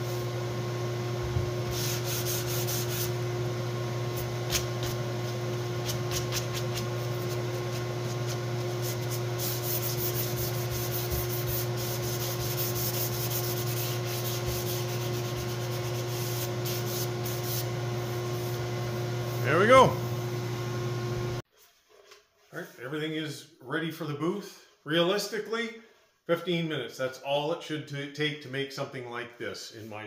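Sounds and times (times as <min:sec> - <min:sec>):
sandpaper rubbing on wood: 0:01.6 - 0:03.2, 0:04.2 - 0:17.7.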